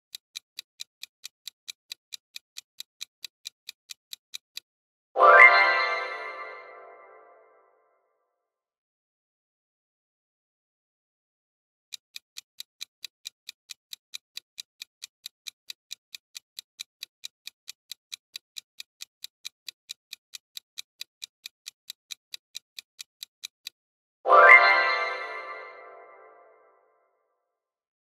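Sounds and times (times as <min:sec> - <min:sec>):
clock ticking: 0:00.0 - 0:04.7, 0:11.9 - 0:23.8.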